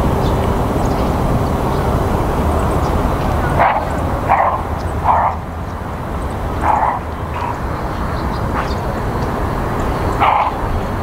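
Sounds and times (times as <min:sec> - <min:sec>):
steady low rumble: 0:00.0 - 0:11.0
animal barks: 0:03.4 - 0:05.6, 0:06.5 - 0:07.8, 0:08.5 - 0:08.8, 0:10.1 - 0:10.7.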